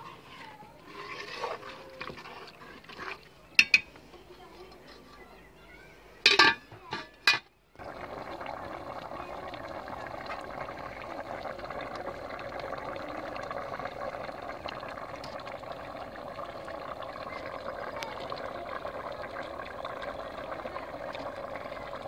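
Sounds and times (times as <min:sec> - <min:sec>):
curry bubbling in a pot: 0:00.3 - 0:03.9, 0:07.7 - 0:22.0
ladle clinking on metal pot: 0:03.6 - 0:03.9, 0:06.3 - 0:07.5.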